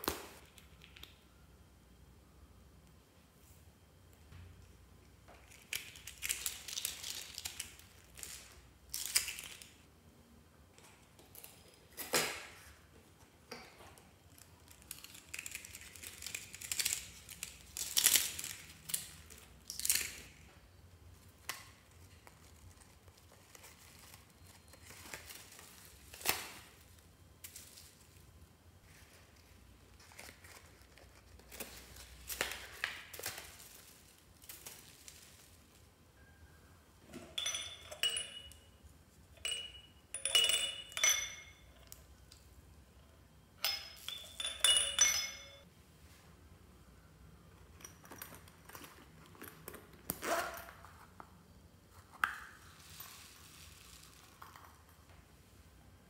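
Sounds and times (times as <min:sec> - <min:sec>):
plastic crinkling and rustling: 0:05.4 - 0:09.9, 0:21.4 - 0:36.0.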